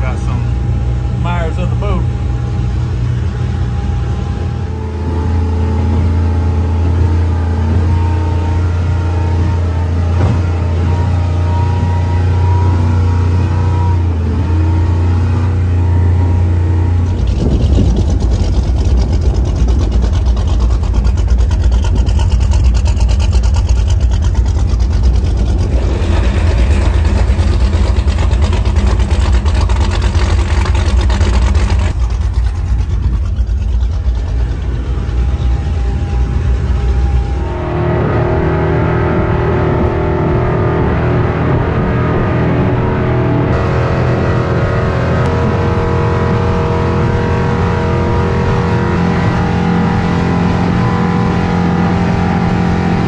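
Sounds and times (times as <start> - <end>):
boat engine idling: 15.7 - 37.5.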